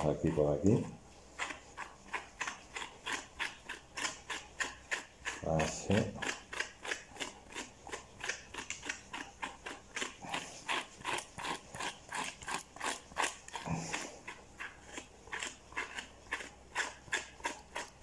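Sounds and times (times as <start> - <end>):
grooming tool raking dog coat: 0.0 - 18.0.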